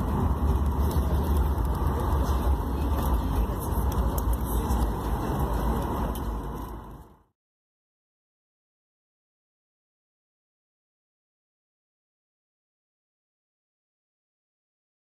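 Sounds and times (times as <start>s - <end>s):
low rumble of engines and wheels: 0.0s - 7.4s.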